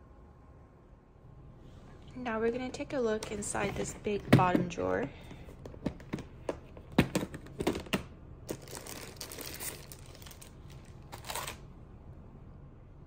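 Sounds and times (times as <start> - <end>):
plastic wrapping rustling: 8.5 - 11.6.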